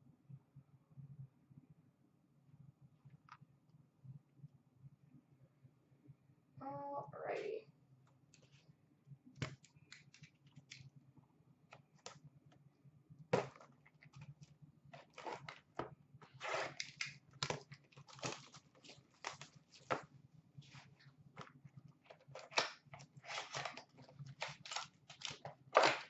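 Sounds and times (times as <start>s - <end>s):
card wrappers tearing and crinkling: 16.3s - 20.0s, 22.2s - 26.0s.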